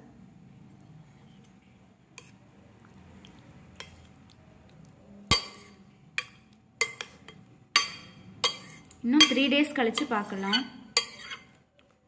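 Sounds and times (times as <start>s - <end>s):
metal spoon clinking on glass bowl: 5.3s - 11.5s.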